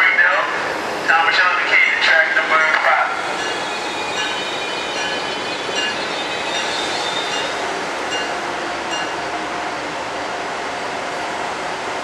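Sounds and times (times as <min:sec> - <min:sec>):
electric train rumbling: 0:00.0 - 0:12.0
train bell ringing: 0:03.3 - 0:09.3.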